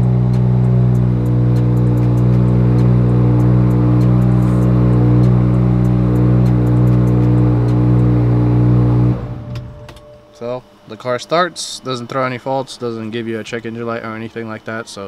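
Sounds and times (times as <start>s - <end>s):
light irregular engine ticking: 0.0s - 10.1s
car engine idling: 0.0s - 10.7s.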